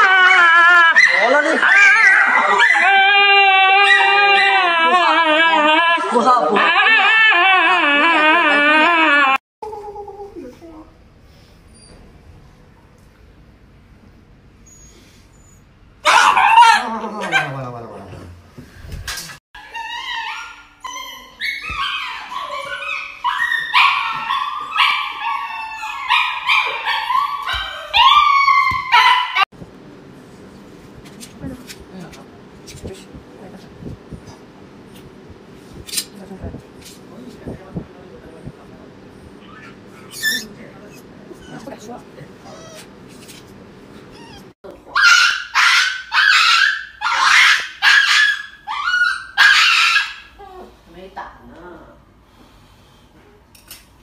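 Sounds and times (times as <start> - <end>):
dog howling and yelping: 0.0 - 9.4, 16.0 - 17.6, 19.6 - 29.5, 44.2 - 50.3.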